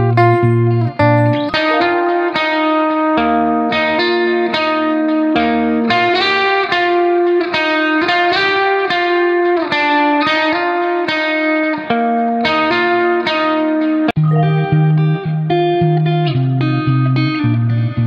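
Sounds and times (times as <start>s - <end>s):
plucked string melody: 0.0s - 3.9s, 14.2s - 17.4s.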